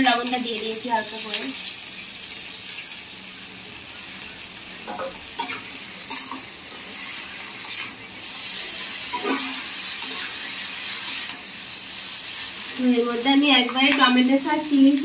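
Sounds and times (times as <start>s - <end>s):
noodles sizzling in a wok: 0.0s - 15.0s
metal spatula scraping a pan: 5.4s - 8.0s, 8.8s - 11.5s.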